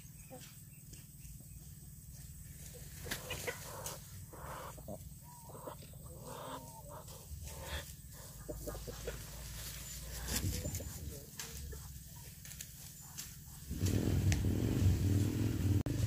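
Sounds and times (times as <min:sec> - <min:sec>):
feathers rustling: 0:07.0 - 0:16.0.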